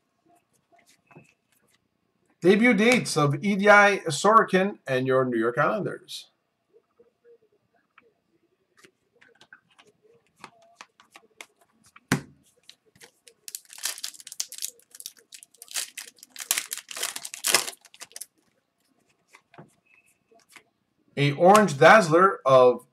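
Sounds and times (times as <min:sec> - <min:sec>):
foil pack tearing and crinkling: 0:13.5 - 0:18.3.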